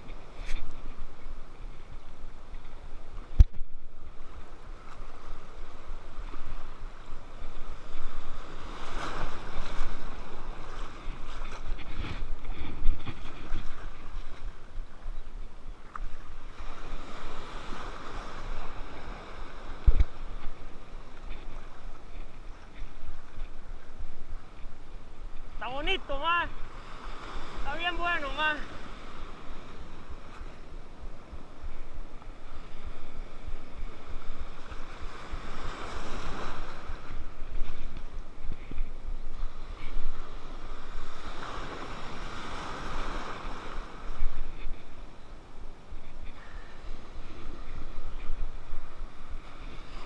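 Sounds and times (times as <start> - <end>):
wind buffeting microphone: 0.0 - 25.6
small waves in shallow water: 0.0 - 50.0.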